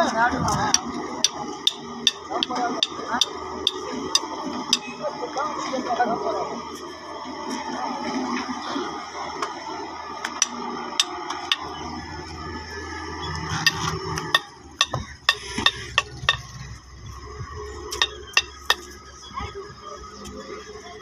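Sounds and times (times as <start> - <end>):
excavator low hum: 0.0 - 21.0
metallic clanks and clicks: 0.8 - 4.9, 13.6 - 16.6.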